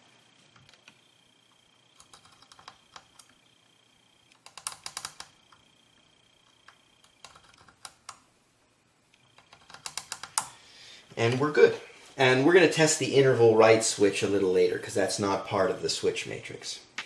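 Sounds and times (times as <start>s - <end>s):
probe clicking across metal pins: 0.5s - 3.4s, 4.3s - 5.7s, 9.1s - 10.6s.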